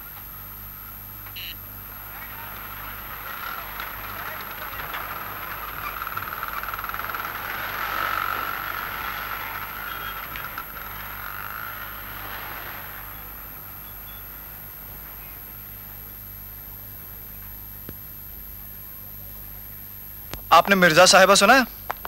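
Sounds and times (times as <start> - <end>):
low hum: 0.0 - 21.0
van engine rattling buzz: 0.8 - 15.1.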